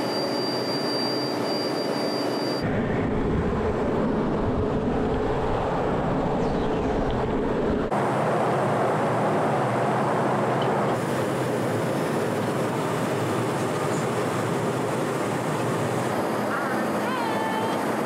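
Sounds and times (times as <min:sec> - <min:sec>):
jet cabin engine and airflow noise: 0:00.0 - 0:18.0.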